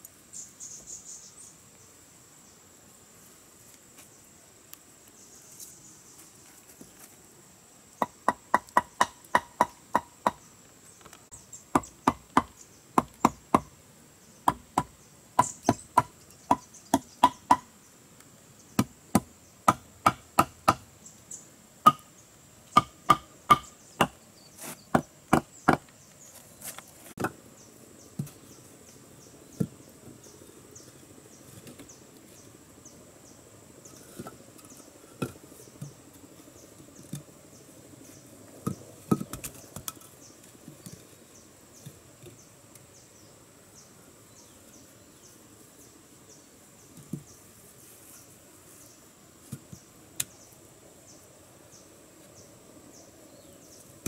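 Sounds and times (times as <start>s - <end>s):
machete chopping wood: 18.8s - 20.9s, 22.8s - 24.2s.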